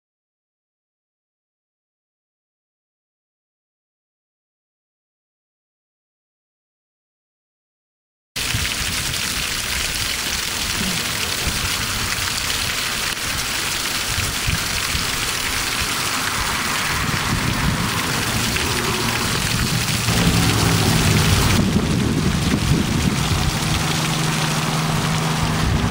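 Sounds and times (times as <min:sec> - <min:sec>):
water splashing over rocks: 0:08.4 - 0:25.9.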